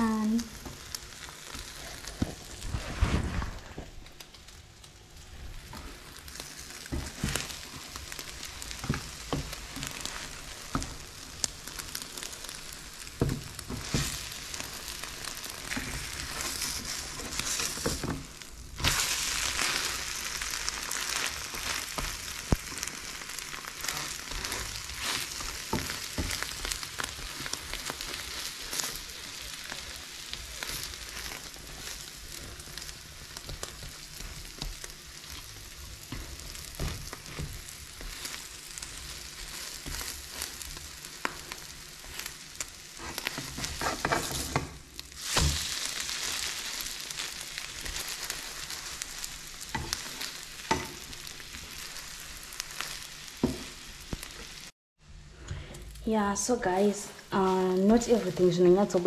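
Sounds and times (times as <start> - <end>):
egg and bread sizzling in a pan: 0.0 - 54.8, 55.8 - 59.0
plastic spatula scraping a pan: 13.6 - 18.2, 30.6 - 45.6.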